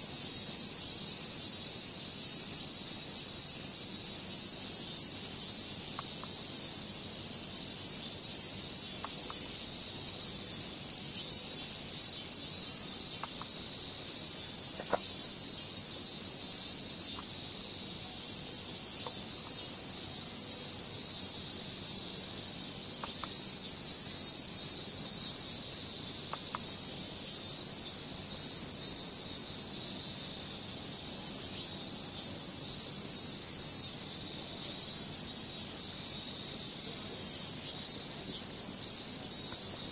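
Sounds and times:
cicadas hissing: 0.0 - 39.9.

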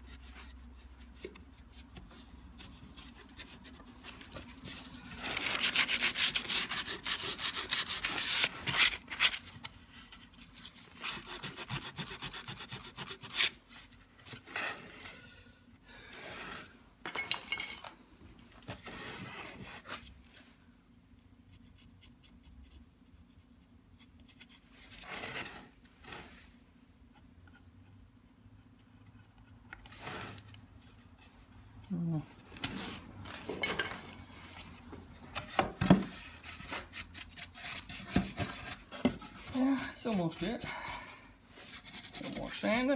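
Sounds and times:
brushing: 0.0 - 8.8, 36.1 - 42.9
hand tools rasping and scraping: 36.1 - 42.9.

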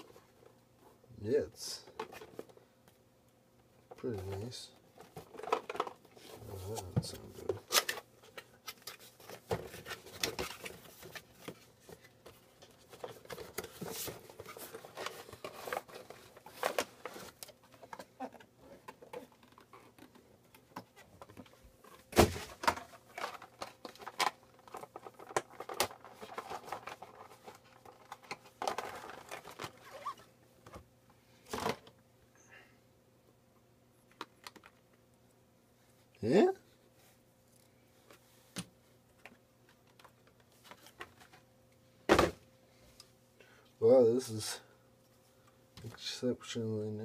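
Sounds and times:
packaging rustling and crinkling: 4.0 - 30.3.

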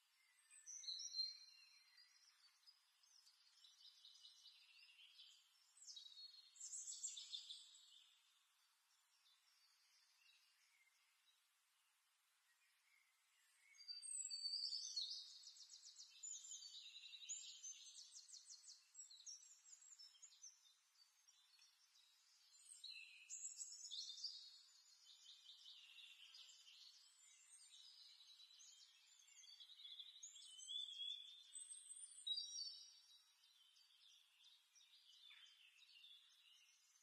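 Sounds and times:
small birds chirping: 0.0 - 37.0.

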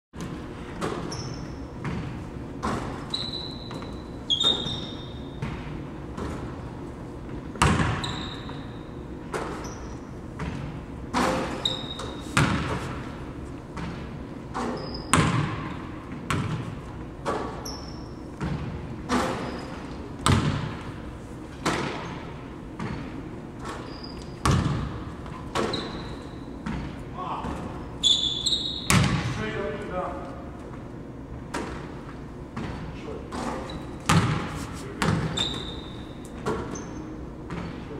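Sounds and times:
sneaker squeaks: 0.7 - 6.6, 7.6 - 20.6, 21.7 - 29.2, 32.6 - 37.8
basketball bouncing on hardwood floor: 1.8 - 2.9, 7.5 - 8.5, 10.4 - 12.8, 13.8 - 17.5, 18.4 - 19.3, 20.2 - 20.8, 22.8 - 27.0, 28.8 - 29.3, 33.4 - 36.8, 37.5 - 37.8.

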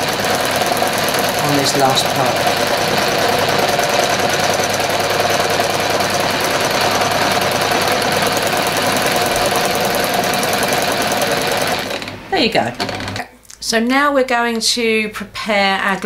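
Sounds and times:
sewing machine needle chatter: 0.0 - 12.2, 12.8 - 13.2
sewing machine motor hum: 0.0 - 13.2.

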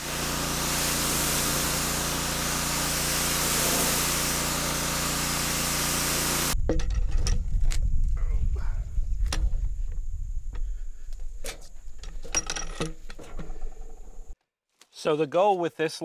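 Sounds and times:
pressure washer spraying: 0.0 - 6.6.

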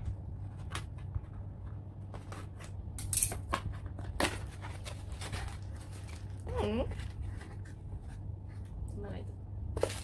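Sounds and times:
cardboard rustling: 3.4 - 8.8.

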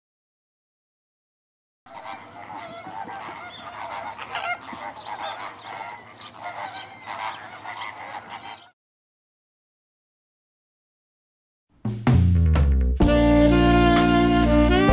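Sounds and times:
flamingos honking: 1.9 - 8.8.

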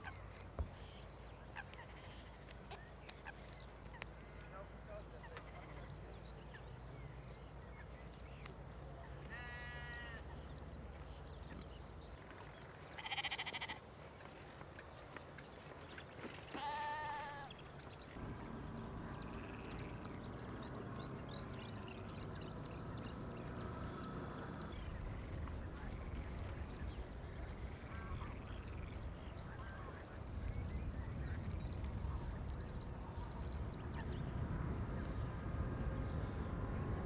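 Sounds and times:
sheep bleating: 9.3 - 10.3, 13.0 - 13.8, 16.6 - 17.5.

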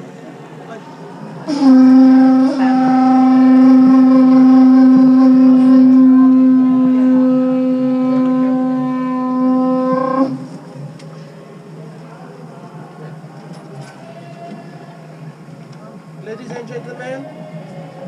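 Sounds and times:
conch shell trumpet blown: 1.5 - 10.6.

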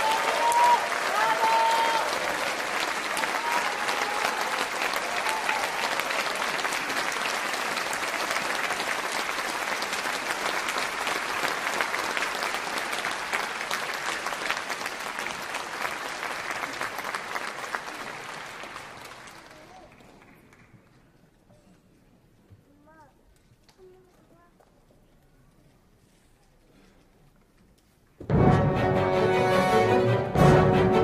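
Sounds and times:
audience applauding: 0.0 - 21.1.

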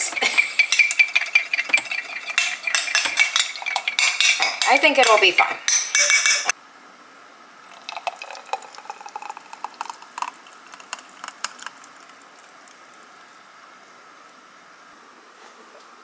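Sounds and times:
blender jar clinking against glass: 0.0 - 6.5
wet slop of smoothie pouring: 7.7 - 13.4.

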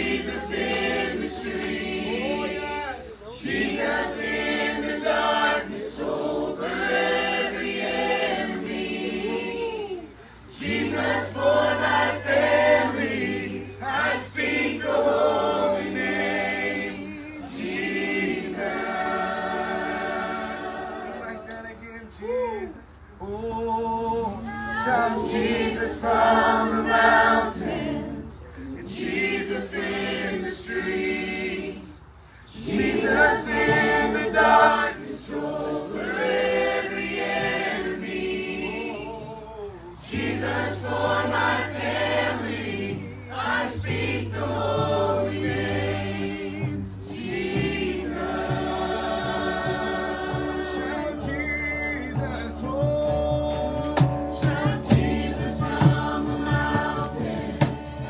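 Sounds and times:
group singing worship song: 0.0 - 58.0
live band with guitars: 39.9 - 58.0.

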